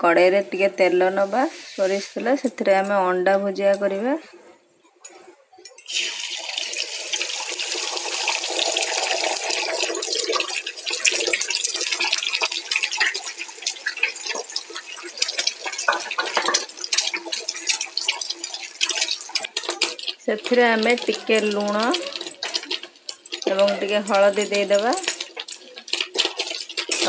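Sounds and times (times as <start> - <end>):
eggs sizzling in hot oil: 5.8 - 27.0
oil crackling and spitting: 5.8 - 27.0.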